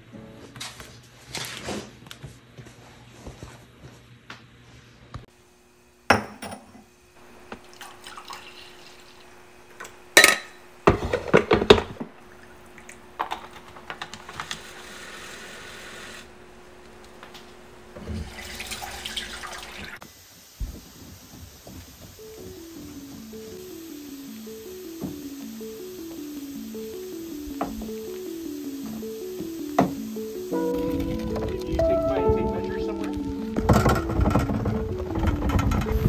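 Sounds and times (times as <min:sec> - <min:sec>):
faint steady hum: 0:05.0 - 0:36.0
liquid pouring: 0:07.3 - 0:09.3, 0:18.0 - 0:20.0.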